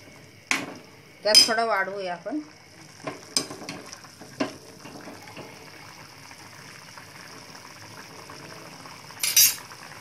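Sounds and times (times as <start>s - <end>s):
curry bubbling: 0.0s - 10.0s
metal ladle knocking pan: 0.5s - 1.6s, 3.0s - 5.2s.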